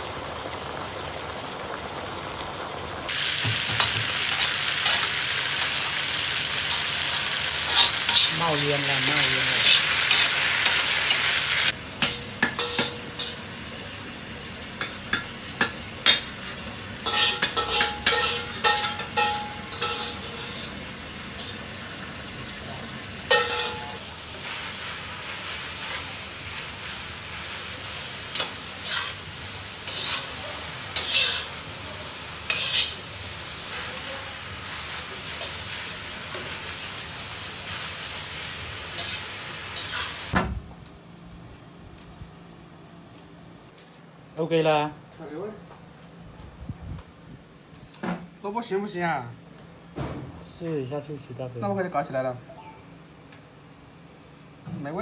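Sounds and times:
oil sizzling in a wok: 0.0s - 40.4s
metal spatula scraping a wok: 7.6s - 8.5s, 12.5s - 13.4s, 16.1s - 20.8s, 28.3s - 31.6s, 32.4s - 33.0s, 38.9s - 40.3s.

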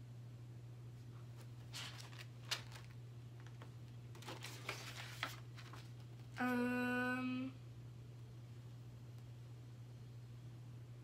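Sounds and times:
paper rustling and pages turning: 1.3s - 6.4s
person humming a note: 6.4s - 7.6s.

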